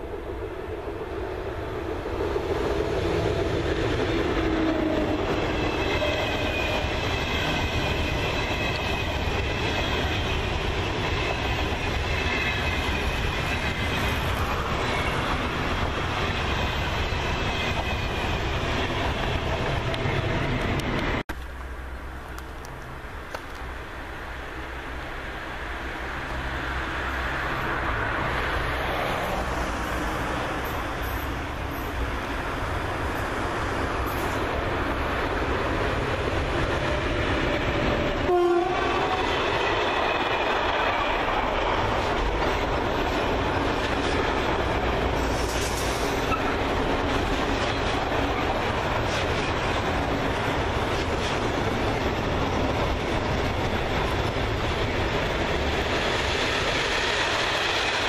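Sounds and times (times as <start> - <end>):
freight train rolling on rails: 0.0 - 58.0
train horn tone: 38.1 - 39.4.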